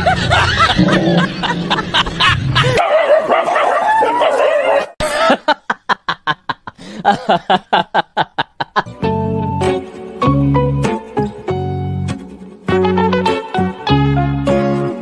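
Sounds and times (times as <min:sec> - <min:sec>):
rapid laughter: 0:00.0 - 0:03.0, 0:05.0 - 0:08.9
dog yelping: 0:02.7 - 0:05.0
music: 0:08.9 - 0:15.0.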